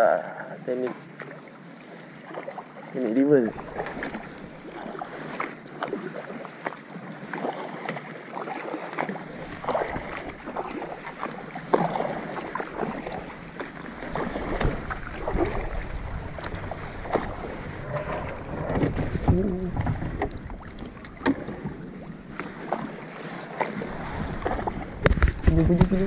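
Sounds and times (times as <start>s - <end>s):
paddles splashing in water: 0.8s - 26.0s
wind on microphone: 12.0s - 22.7s, 23.8s - 26.0s.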